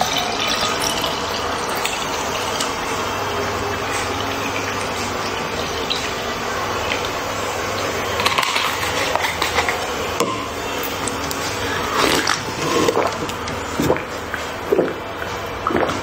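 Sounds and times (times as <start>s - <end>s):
person gulping a drink: 12.0s - 16.0s.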